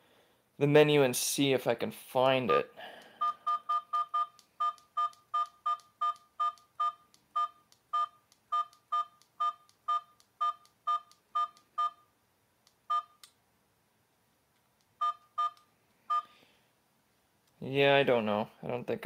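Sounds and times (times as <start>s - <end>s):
short electronic beeps: 2.5s - 12.1s.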